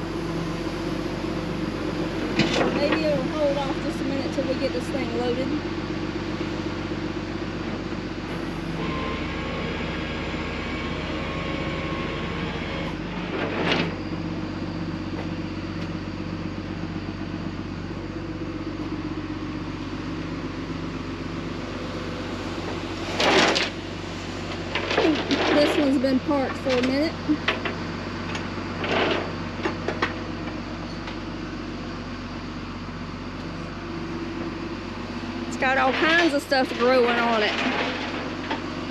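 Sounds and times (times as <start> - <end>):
vehicle engine idling: 0.0 - 13.4, 14.0 - 38.9.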